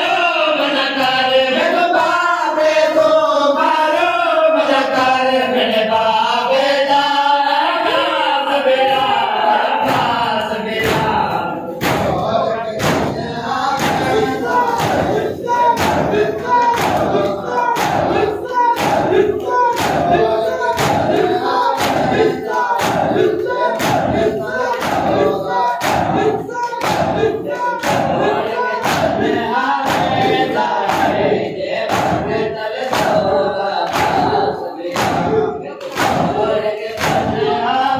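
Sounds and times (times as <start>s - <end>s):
men chanting in unison: 0.0s - 37.9s
hands slapping chests: 9.8s - 13.2s, 13.8s - 31.3s, 31.9s - 37.5s.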